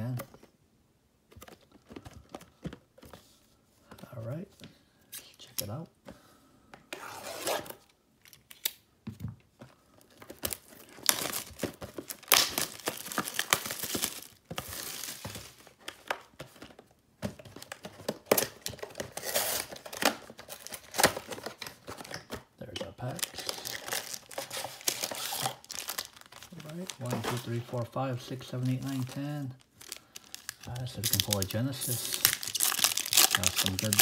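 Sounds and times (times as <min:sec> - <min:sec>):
cellophane wrap tearing and crinkling: 0:10.4 - 0:15.6, 0:18.3 - 0:21.3, 0:23.1 - 0:27.8, 0:28.6 - 0:34.0.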